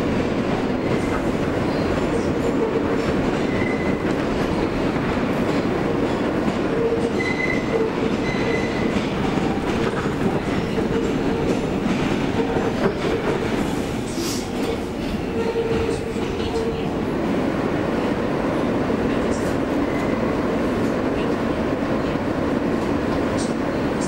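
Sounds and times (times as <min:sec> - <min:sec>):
train wheels rumbling on rail: 0:00.0 - 0:24.0.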